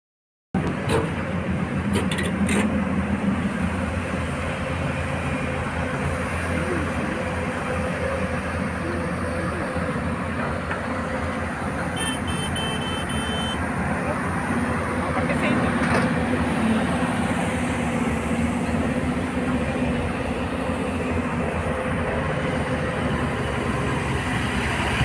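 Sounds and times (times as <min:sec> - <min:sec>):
diesel engines of heavy machinery: 0:00.6 - 0:25.0.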